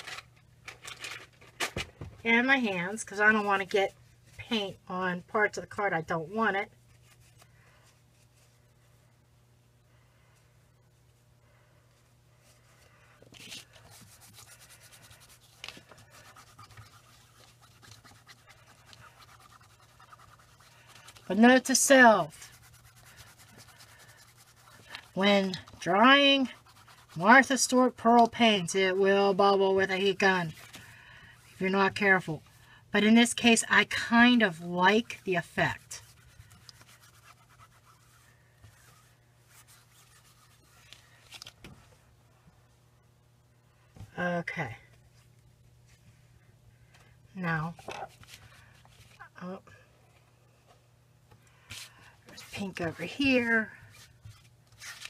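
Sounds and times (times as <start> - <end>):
low steady hum: 0.0 - 55.0
paper towel rubbing on plastic mat: 13.4 - 28.0, 33.2 - 41.5, 51.7 - 55.0.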